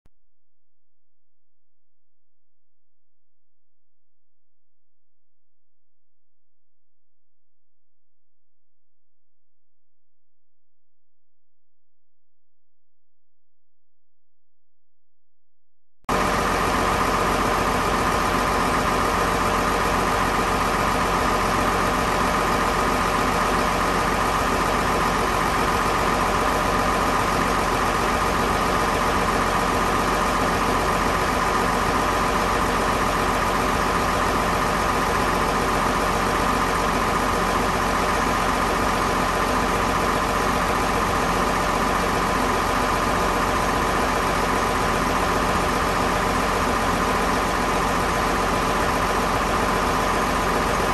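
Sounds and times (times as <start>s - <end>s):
diesel generator running: 16.1s - 50.9s.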